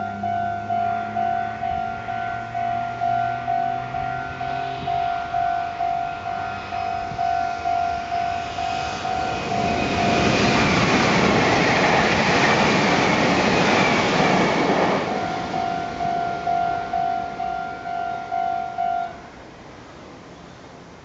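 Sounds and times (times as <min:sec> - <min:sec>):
level-crossing bell ringing: 0:00.0 - 0:10.4, 0:15.1 - 0:19.2
electric train passing: 0:00.0 - 0:21.0.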